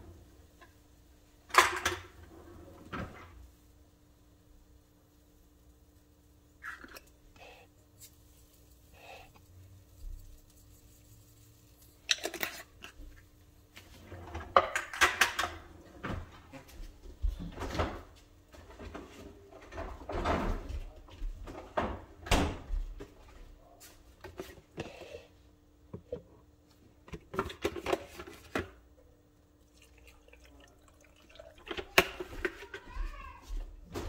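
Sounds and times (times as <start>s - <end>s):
kitchen knocks and scrapes: 13.8s - 23.4s.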